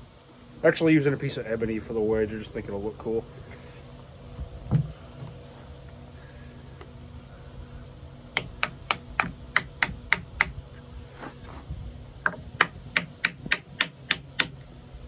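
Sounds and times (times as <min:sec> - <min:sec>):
hammer tapping wooden wedge: 0:08.4 - 0:10.5, 0:12.2 - 0:14.6.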